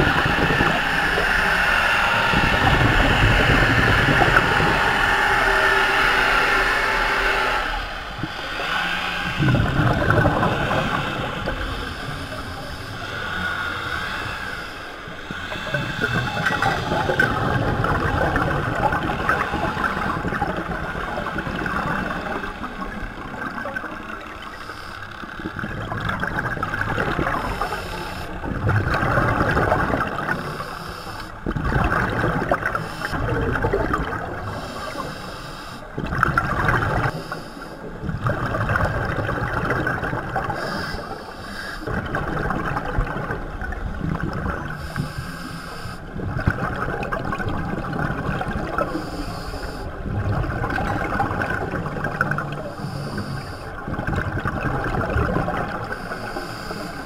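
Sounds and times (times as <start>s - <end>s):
diver breathing through regulator: 0.0s - 17.8s, 24.4s - 25.4s, 27.2s - 28.4s, 30.2s - 31.4s, 32.6s - 33.3s, 34.5s - 36.0s, 36.9s - 37.9s, 40.4s - 42.0s, 44.8s - 46.2s, 48.8s - 50.0s, 52.4s - 53.8s, 55.7s - 57.0s
exhaled bubbles gurgling: 0.0s - 57.0s.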